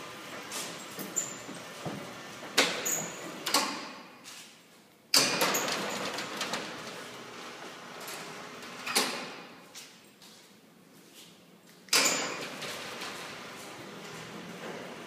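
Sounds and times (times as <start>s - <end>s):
roller shutter motor: 5.4s - 8.9s, 12.2s - 15.0s.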